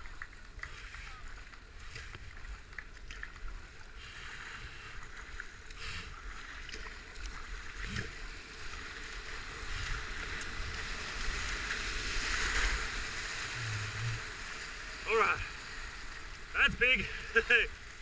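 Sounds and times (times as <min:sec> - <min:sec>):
kayak paddle splashes: 0:00.0 - 0:18.0
rushing whitewater: 0:07.8 - 0:18.0.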